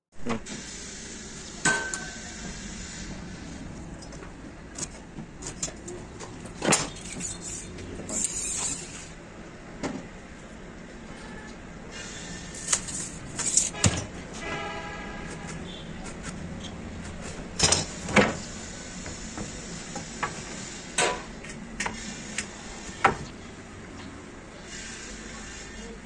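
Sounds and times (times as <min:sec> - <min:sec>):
brief tone: 0:11.1 - 0:11.6.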